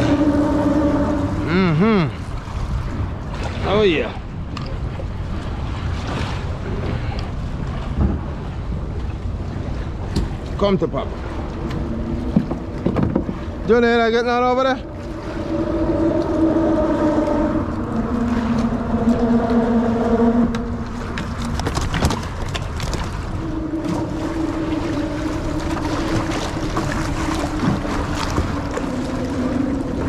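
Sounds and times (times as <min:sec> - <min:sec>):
boat motor droning: 0:00.0 - 0:30.0
water noise: 0:00.0 - 0:30.0
wind: 0:00.0 - 0:30.0.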